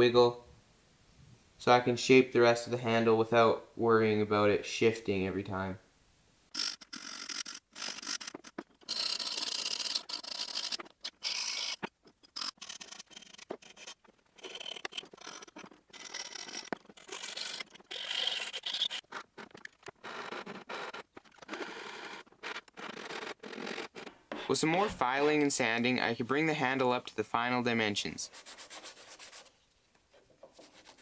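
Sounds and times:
hand file rasping on wood: 6.6 - 19.1, 30.5 - 31.0.

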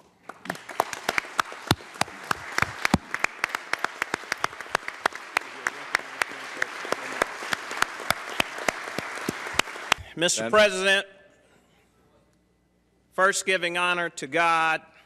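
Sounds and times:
loud claps close by: 0.0 - 10.1
crowd applauding: 0.0 - 10.2.

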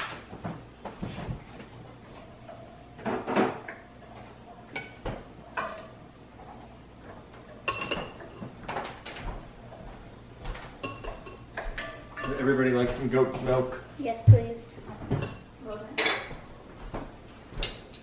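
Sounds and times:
kitchen clatter: 0.0 - 1.4, 2.0 - 9.8, 10.4 - 13.6, 14.8 - 16.4, 17.5 - 18.0
metal tongs clinking on ceramic bowl: 10.8 - 12.5.

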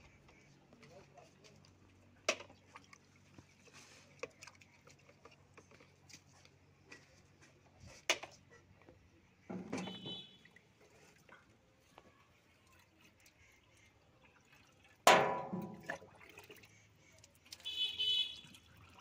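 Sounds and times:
bucket knocking against metal: 9.5 - 10.3, 15.1 - 16.0.

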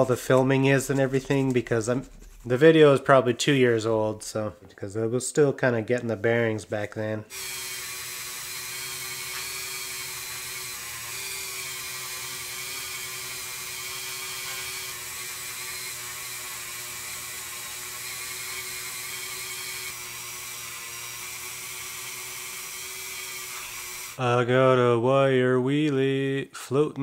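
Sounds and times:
rotary tool wire brush whining: 7.3 - 24.2.

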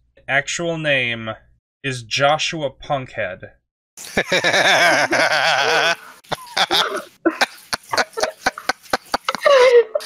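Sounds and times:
person laughing: 4.0 - 10.0.

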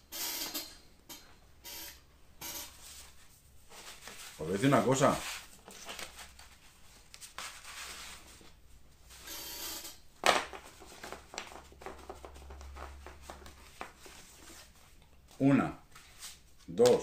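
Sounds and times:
cardboard cards rustling: 3.7 - 8.6, 10.4 - 17.0
cards tapping while shuffled: 10.2 - 14.6.

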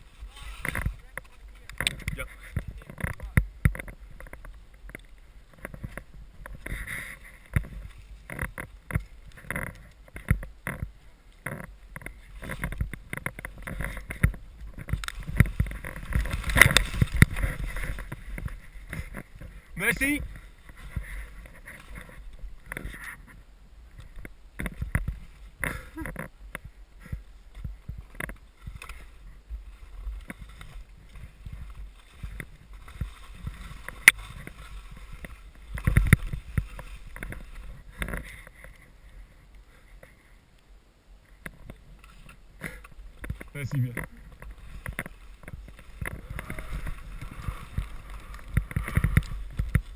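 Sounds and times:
skis swishing through snow and shrubs: 10.8 - 23.4, 27.5 - 40.0, 41.8 - 49.9
wind on microphone: 11.8 - 39.2, 44.1 - 49.9.

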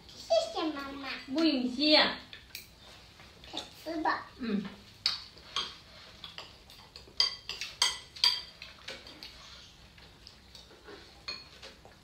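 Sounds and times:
chopsticks clinking on ceramic bowls: 5.4 - 9.0, 11.2 - 11.8.

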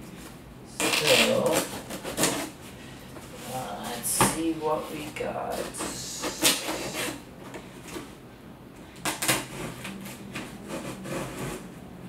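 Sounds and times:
blade slitting packing tape: 0.8 - 2.5, 5.8 - 7.2, 9.0 - 11.7.

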